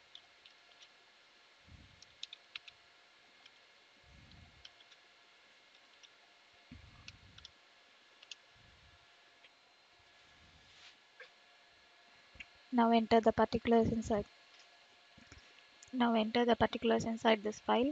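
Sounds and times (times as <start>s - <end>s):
keyboard typing: 2.0s - 2.8s.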